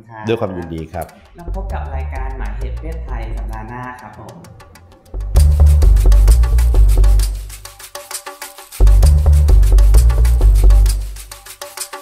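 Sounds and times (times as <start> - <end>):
clicky wood-block percussion: 0.3 - 12.0
electronic theme music: 0.3 - 12.0
deep bass line: 1.4 - 3.9, 5.2 - 7.6, 8.8 - 11.2.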